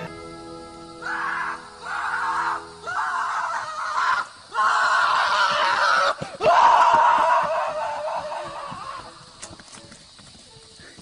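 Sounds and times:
person screaming: 1.0 - 9.0.

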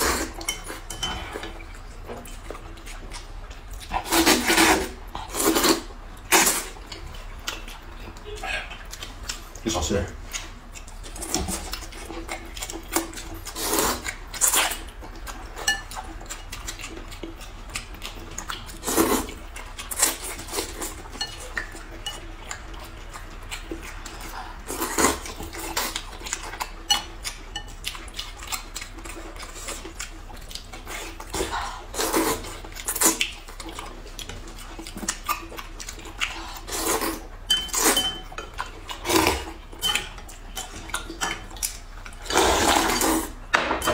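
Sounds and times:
utensils clinking against bowls: 0.0 - 2.4, 19.9 - 22.9, 36.3 - 43.9
slurping and chewing: 0.0 - 43.9.

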